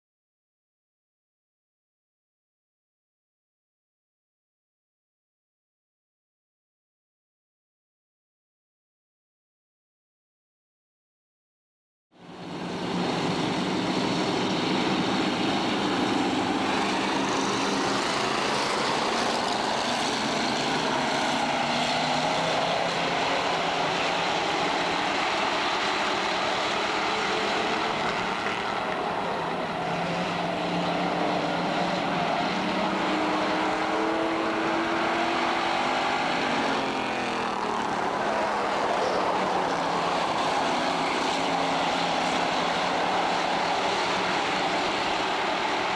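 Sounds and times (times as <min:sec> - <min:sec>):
race car engines passing: 0:12.2 - 0:45.9.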